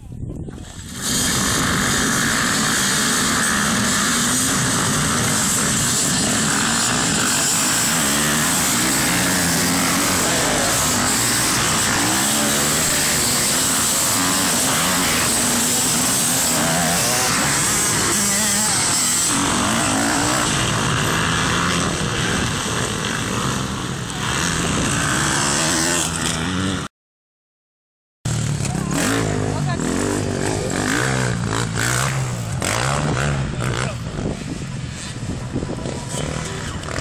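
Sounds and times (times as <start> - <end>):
motorcycles revving and accelerating: 0.5 - 26.9, 28.3 - 37.0.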